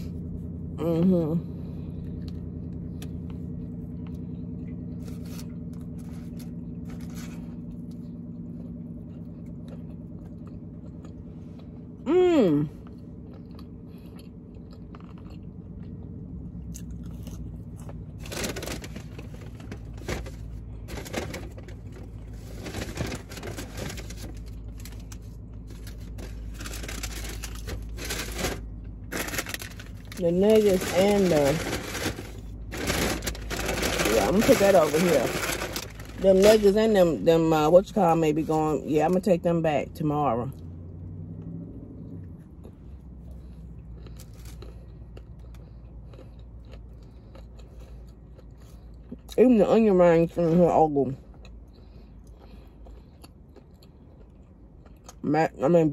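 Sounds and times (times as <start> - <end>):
low hum in car cabin: 0.0 - 55.9
person chewing and crunching food: 1.8 - 37.0, 40.5 - 49.7, 50.3 - 55.3
paper wrappers crackling: 18.1 - 37.2.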